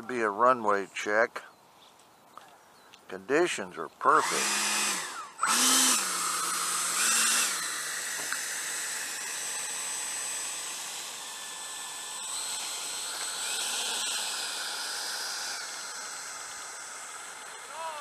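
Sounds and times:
electric ducted fans whining: 4.1s - 18.0s.

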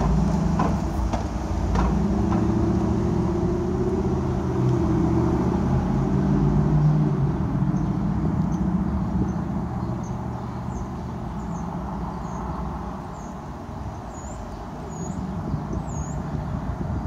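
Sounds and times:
street traffic rumble: 0.0s - 17.0s
bird chirping: 7.7s - 16.8s.

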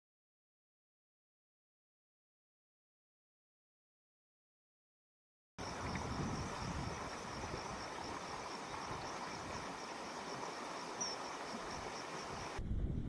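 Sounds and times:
insects trilling: 5.6s - 12.6s
low steady rumble: 12.6s - 13.0s.

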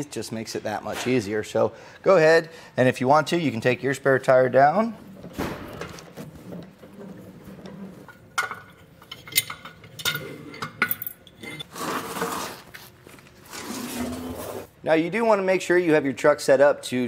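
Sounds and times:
metal cable clinking and rattling: 5.2s - 11.7s.

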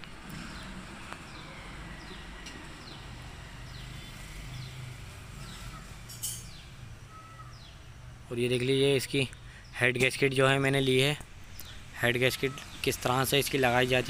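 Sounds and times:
bird chirping: 0.4s - 14.0s.

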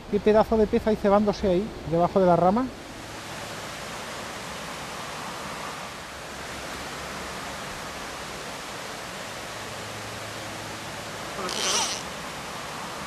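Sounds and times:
mountain river flowing: 0.0s - 13.0s.

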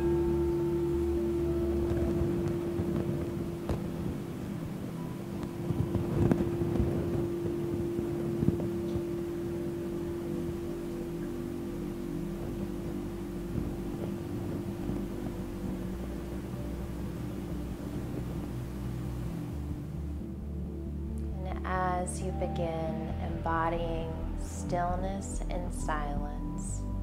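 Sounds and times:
singing bowl ringing: 0.0s - 19.4s.

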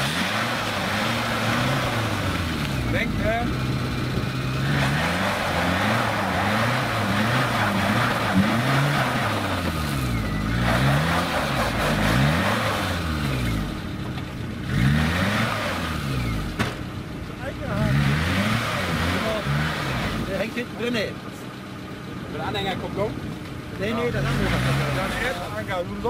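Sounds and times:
rushing noise: 0.0s - 13.2s
off-road vehicle engine revving: 0.0s - 26.0s.

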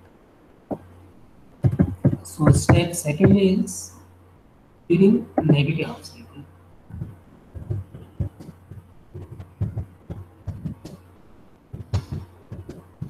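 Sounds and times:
faint low hum: 0.0s - 13.0s
keyboard typing: 1.6s - 3.4s, 6.9s - 11.0s, 11.7s - 13.0s.

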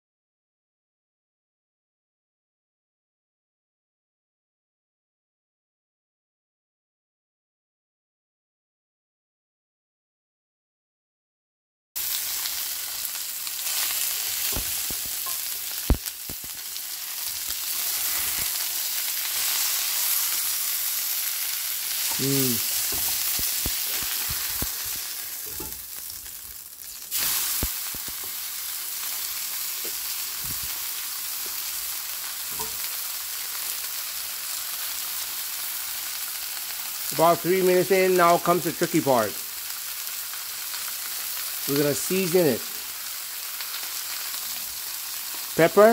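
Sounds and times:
steak sizzling in frying pan: 12.0s - 45.9s
spatula knocking and scraping pan: 22.0s - 25.8s, 32.5s - 32.8s.

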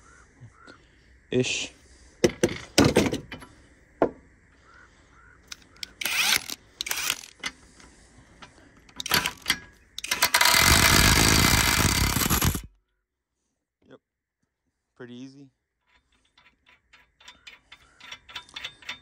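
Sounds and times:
impact wrench hammering: 9.0s - 12.7s.

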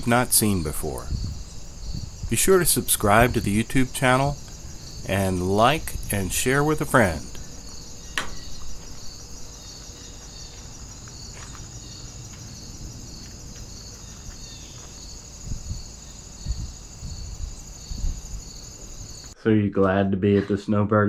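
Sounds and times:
crickets chirring: 0.0s - 19.4s.

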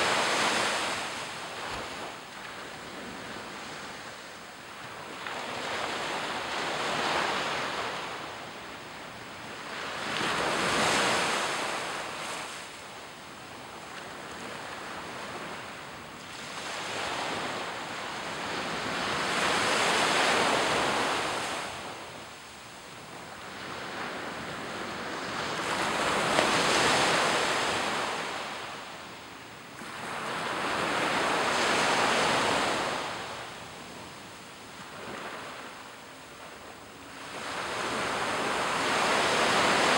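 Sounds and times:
waves washing up beach: 0.0s - 12.8s, 13.9s - 39.9s.

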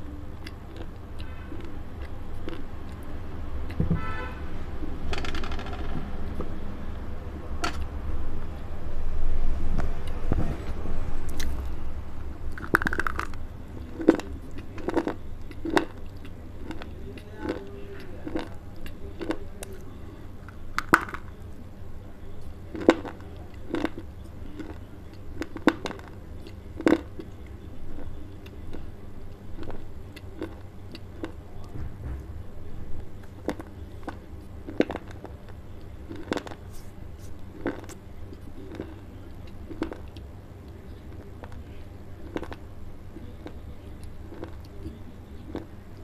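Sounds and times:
dry clay crunching when chewed: 0.3s - 3.8s, 10.0s - 11.8s, 12.5s - 21.7s, 22.4s - 31.7s, 33.1s - 46.0s.

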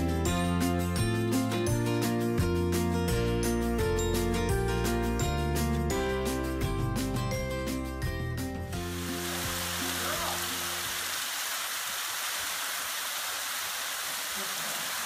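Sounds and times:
background music: 0.0s - 10.9s
waterfall splashing onto rocks: 8.8s - 15.0s.

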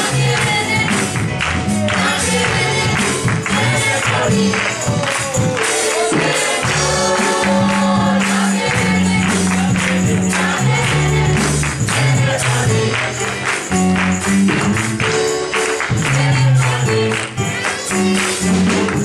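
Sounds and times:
band playing worship music: 0.0s - 19.0s
shaken percussion beat: 0.0s - 19.0s
choir singing: 1.9s - 13.4s.

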